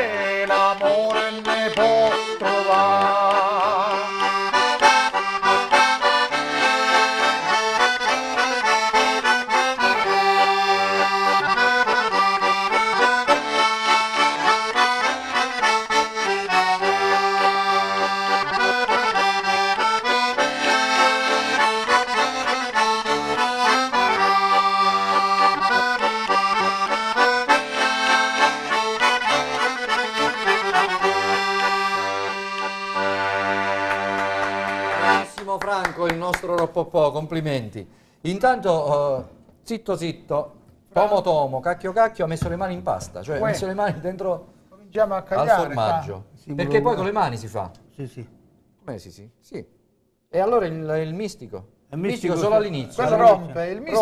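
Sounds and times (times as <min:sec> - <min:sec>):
button accordion folk tune: 0:00.0 - 0:35.4, 0:43.4 - 0:43.7, 0:46.6 - 0:47.2, 0:52.1 - 0:54.0.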